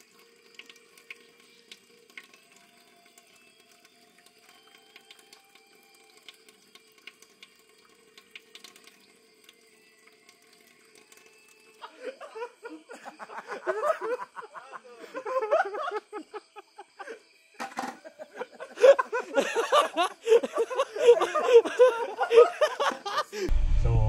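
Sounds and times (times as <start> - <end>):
running water: 0.0 - 11.9.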